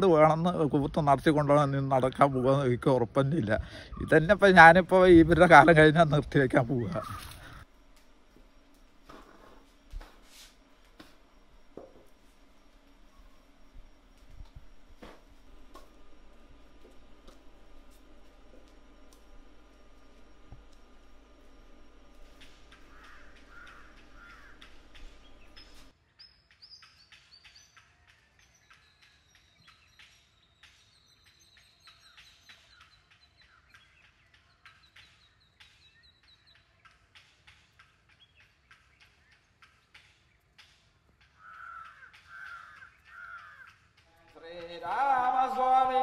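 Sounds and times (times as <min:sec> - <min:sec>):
birds chirping and trilling: 0:00.0 - 0:09.9, 0:10.6 - 0:46.0
steady electrical hum: 0:00.0 - 0:26.0
crow cawing: 0:22.4 - 0:25.9, 0:41.2 - 0:45.6.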